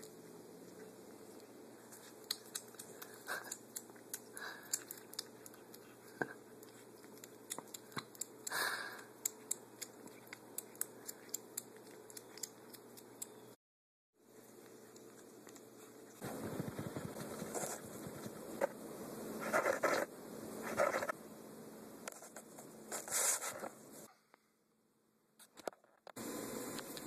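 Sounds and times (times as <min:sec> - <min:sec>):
kitten crunching dry kibble: 0:00.1 - 0:13.4, 0:14.3 - 0:18.7.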